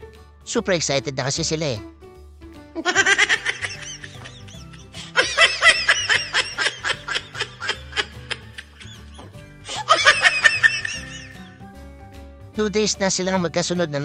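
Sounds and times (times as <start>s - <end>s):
background music with bass line: 0.0s - 14.0s
high-pitched rapid laughter: 2.8s - 11.4s.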